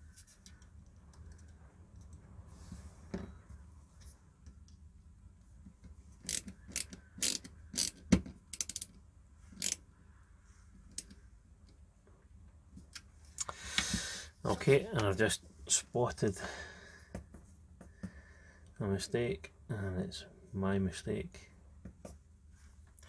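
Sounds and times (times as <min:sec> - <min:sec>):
small parts clicking and tapping: 0:00.2 - 0:02.2, 0:05.6 - 0:09.0, 0:09.6 - 0:09.8.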